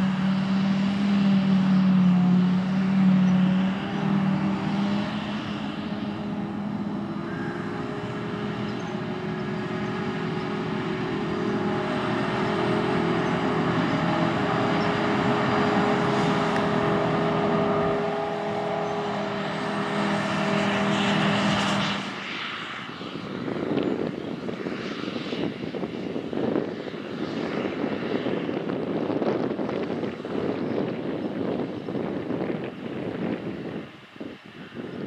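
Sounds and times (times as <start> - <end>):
forage harvester engine droning: 0.0 - 24.6
wind on microphone: 0.0 - 35.0.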